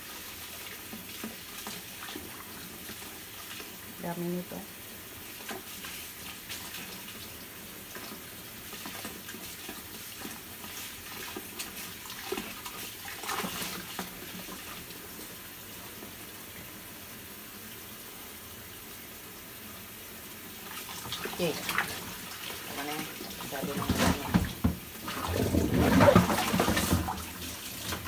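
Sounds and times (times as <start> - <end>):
water splashing and sloshing: 0.0 - 17.0, 19.4 - 28.0
tap running into water: 21.0 - 28.0.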